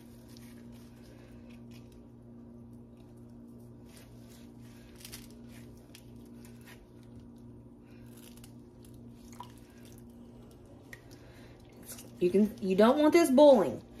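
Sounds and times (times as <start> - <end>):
cheese curd squelching by hand: 0.0 - 12.9
steady low hum: 0.0 - 14.0.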